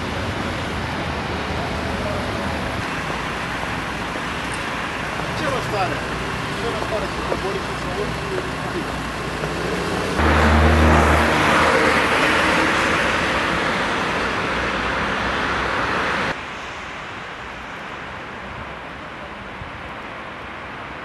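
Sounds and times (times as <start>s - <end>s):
vehicle engine hum: 0.0s - 16.4s
road noise rush: 0.0s - 21.0s
steady traffic hum: 0.0s - 21.0s.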